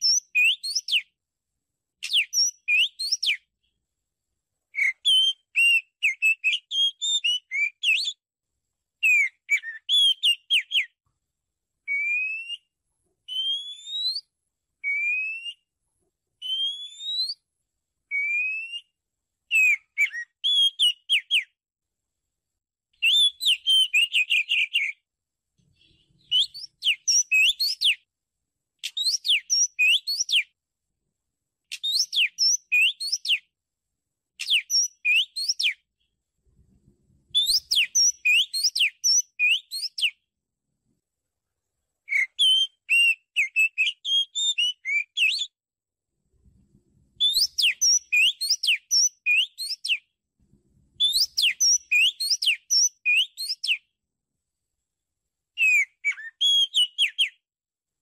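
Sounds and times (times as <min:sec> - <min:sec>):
bird singing whistles: 0:00.0 - 0:01.1, 0:02.0 - 0:03.5, 0:04.7 - 0:08.2, 0:09.0 - 0:11.0, 0:11.9 - 0:12.7, 0:13.3 - 0:15.7, 0:16.4 - 0:17.4, 0:18.1 - 0:21.6, 0:23.0 - 0:25.0, 0:26.2 - 0:28.0, 0:28.8 - 0:30.5, 0:31.7 - 0:33.5, 0:34.4 - 0:35.8, 0:37.3 - 0:40.2, 0:42.1 - 0:45.6, 0:47.2 - 0:50.0, 0:51.0 - 0:53.9, 0:55.6 - 0:57.4.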